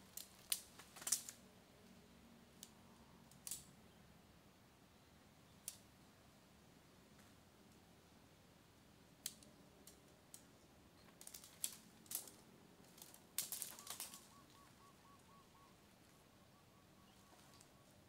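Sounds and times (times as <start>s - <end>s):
faint sharp clicks and snaps: 5.6s - 5.9s, 9.2s - 14.6s.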